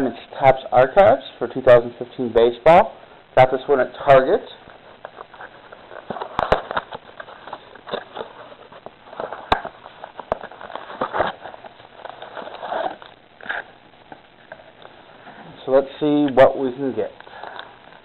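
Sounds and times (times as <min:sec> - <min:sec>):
plastic wrapper crinkling and tearing: 0:04.7 - 0:15.0.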